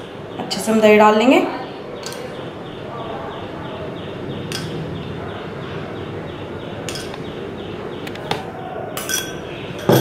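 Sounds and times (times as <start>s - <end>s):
spoon clinking against glass bowl: 6.9s - 7.3s, 9.0s - 10.0s.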